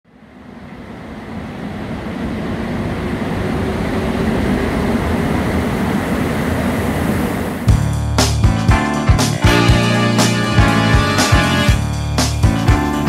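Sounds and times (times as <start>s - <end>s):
train rumbling: 0.1s - 13.0s.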